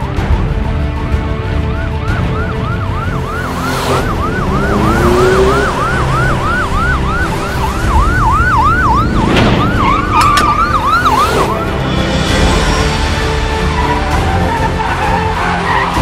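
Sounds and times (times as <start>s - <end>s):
police siren yelping: 1.6s - 11.9s.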